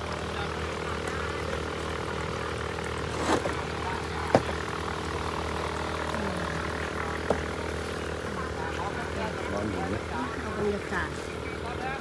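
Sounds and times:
motor hum: 0.0s - 12.0s
water bubbling from aerator: 1.9s - 7.9s.

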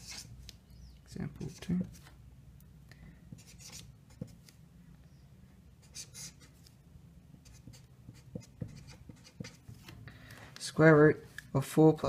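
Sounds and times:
marker scratching on paper: 0.0s - 0.5s, 1.4s - 2.1s, 3.3s - 4.6s, 5.8s - 6.8s, 7.4s - 9.9s.

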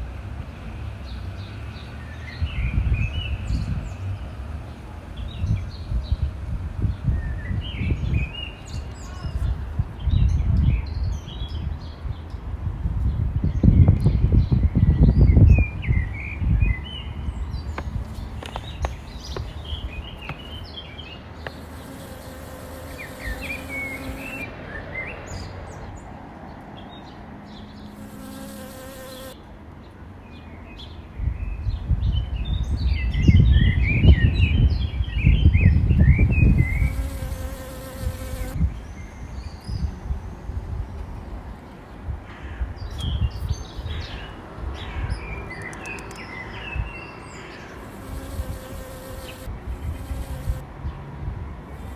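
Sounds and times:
small birds chirping: 1.0s - 50.6s
honey bee buzzing: 21.4s - 24.4s, 28.0s - 29.4s, 36.6s - 38.6s, 47.8s - 50.6s.

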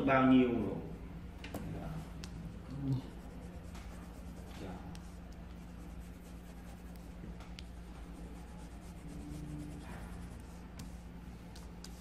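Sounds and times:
low steady hum: 0.0s - 12.0s
pencil rubbing on paper: 3.0s - 12.0s.

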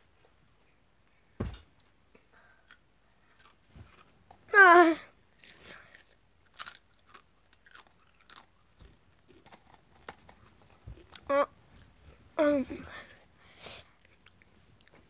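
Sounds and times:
crisp crunching while chewing: 5.3s - 11.3s.

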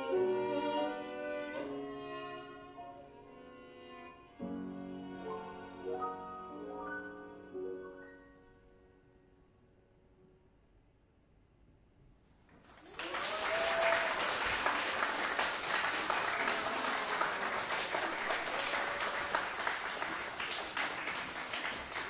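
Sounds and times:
audience applauding: 12.6s - 22.0s.

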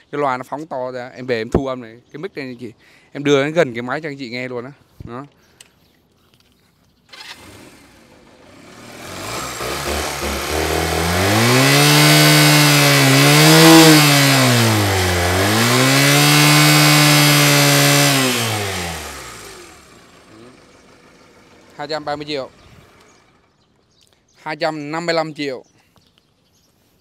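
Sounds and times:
motorcycle engine revving: 7.1s - 23.9s.

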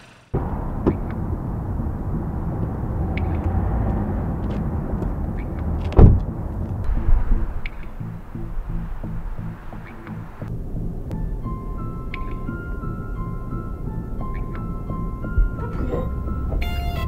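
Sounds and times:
low rumble: 0.0s - 17.0s
car door thump: 5.9s - 6.3s
music with even pulse: 6.9s - 17.0s.

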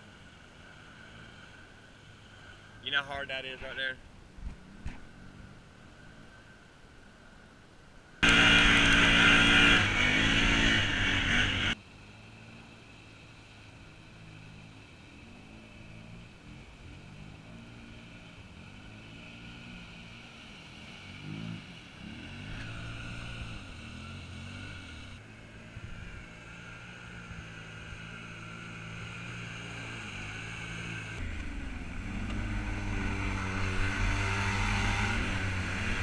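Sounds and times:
off-road vehicle engines revving: 0.0s - 6.4s, 8.2s - 36.0s.

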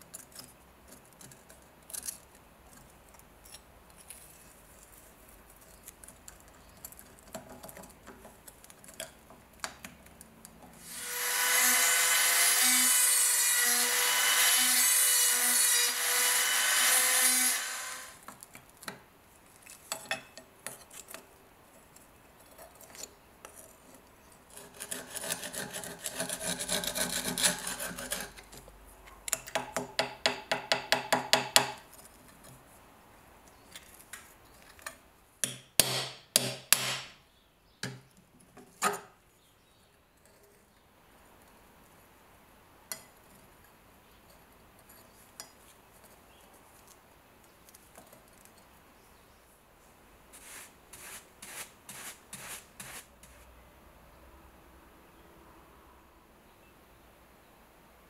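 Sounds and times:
rotary tool grinding whine: 10.8s - 18.2s.

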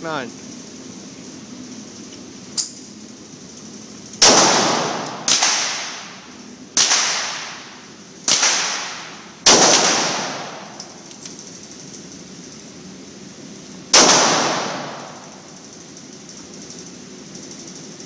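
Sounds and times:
pistol shots echoing indoors: 4.2s - 6.2s, 6.8s - 11.0s, 13.9s - 15.5s.

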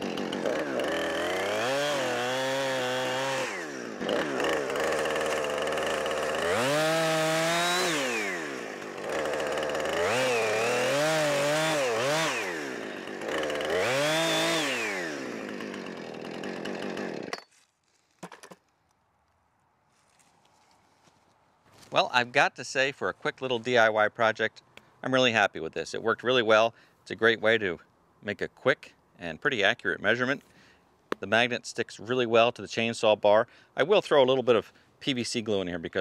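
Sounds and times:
chainsaw cutting log: 0.0s - 17.4s.

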